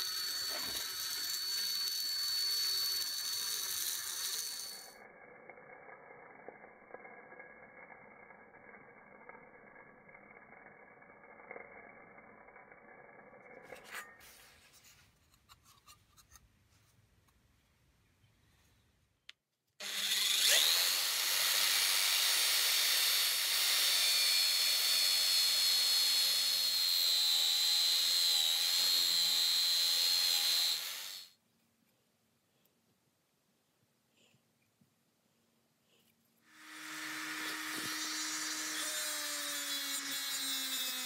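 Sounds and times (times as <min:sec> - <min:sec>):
power tool wire brush whirring: 0:00.0 - 0:05.0, 0:19.8 - 0:31.4, 0:36.5 - 0:41.0.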